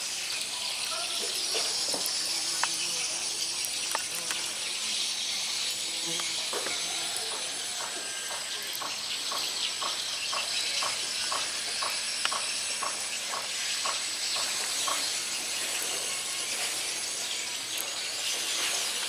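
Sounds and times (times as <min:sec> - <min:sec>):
insect chorus hissing: 0:00.0 - 0:19.0
short repeating insect call: 0:00.0 - 0:19.0.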